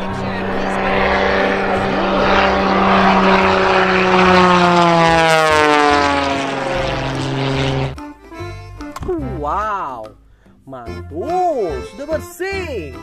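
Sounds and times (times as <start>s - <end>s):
propeller airplane engine droning: 0.0s - 8.0s.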